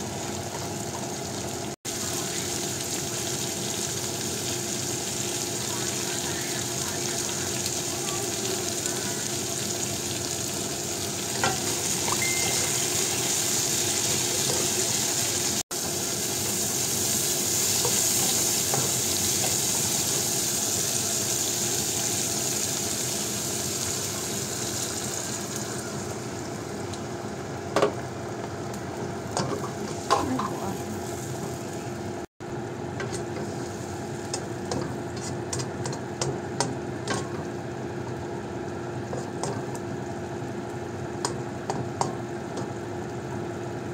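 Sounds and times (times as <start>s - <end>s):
vegetables sizzling in a wok: 0.0s - 43.9s
spatula scraping a wok: 34.8s - 35.7s.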